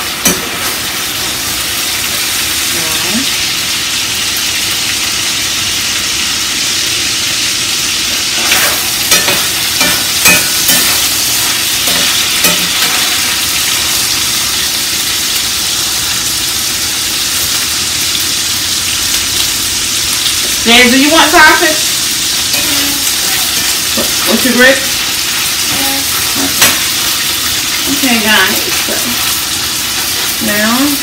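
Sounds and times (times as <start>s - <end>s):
sausage sizzling in frying pan: 0.0s - 31.0s
pieces clattering into pan: 8.1s - 14.8s, 22.3s - 31.0s.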